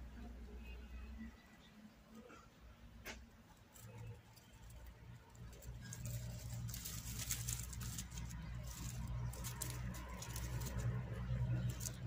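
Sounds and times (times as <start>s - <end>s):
rustling and scratching in grass: 3.4s - 12.0s.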